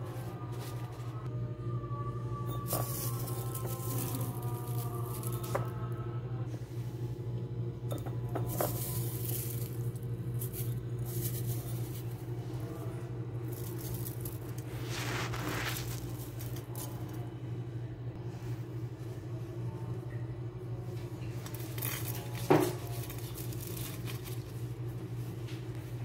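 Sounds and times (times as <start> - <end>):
kitchen hum: 0.0 - 26.0.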